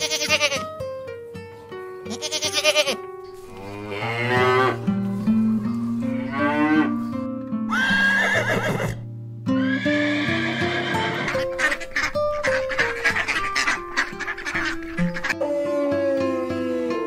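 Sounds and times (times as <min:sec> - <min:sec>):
light music with plucked notes: 0:00.0 - 0:17.0
cow mooing: 0:03.5 - 0:04.8, 0:06.1 - 0:07.0
horse whinnying: 0:07.7 - 0:09.0, 0:09.6 - 0:11.9
loud animal call: 0:07.7 - 0:09.0, 0:09.6 - 0:17.0.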